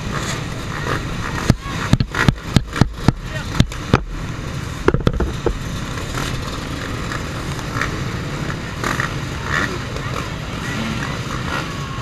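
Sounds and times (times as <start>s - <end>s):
motocross bike engines: 0.0s - 12.0s
sharp knocks: 4.8s - 5.6s.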